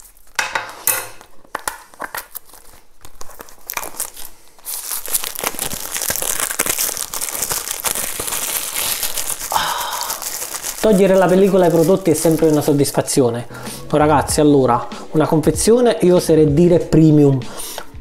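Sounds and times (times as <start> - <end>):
plastic film crinkling: 0.0 - 0.4, 1.2 - 13.4.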